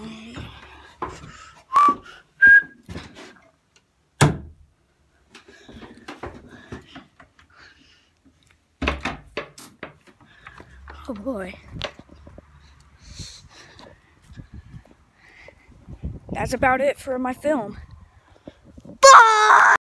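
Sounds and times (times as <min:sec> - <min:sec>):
short whistled notes: 0:01.7 - 0:02.8.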